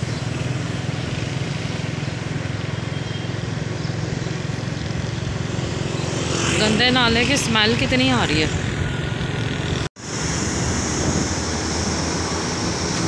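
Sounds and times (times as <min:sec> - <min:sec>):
road noise: 0:00.0 - 0:13.0
small vehicle engine humming: 0:00.0 - 0:13.0
wind noise: 0:05.2 - 0:13.0.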